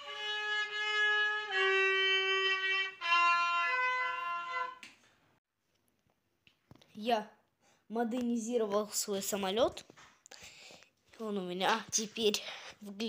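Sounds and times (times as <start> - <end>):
violin bowed notes: 0.0 - 4.9.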